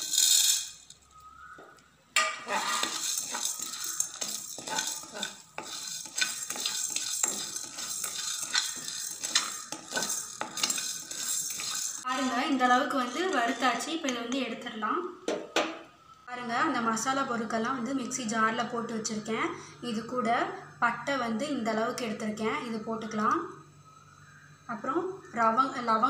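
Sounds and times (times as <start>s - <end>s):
spices poured into a pan: 0.0s - 1.2s, 2.4s - 14.0s
spatula scraping a pan: 2.2s - 14.4s.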